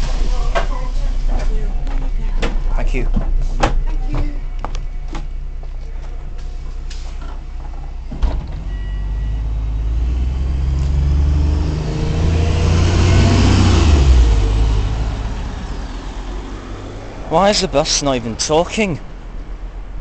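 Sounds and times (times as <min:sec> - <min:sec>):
bus engine driving past: 0:00.0 - 0:20.0.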